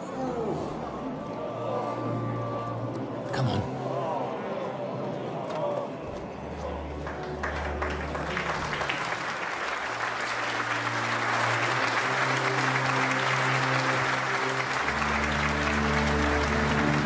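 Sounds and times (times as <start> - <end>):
crowd clapping: 5.5 - 17.0
film music with held chords: 9.5 - 17.0.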